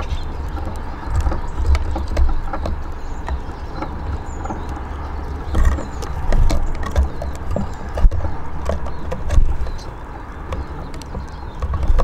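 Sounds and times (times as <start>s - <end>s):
bird chirp: 0.0s - 12.0s
birds pecking seed: 0.0s - 12.0s.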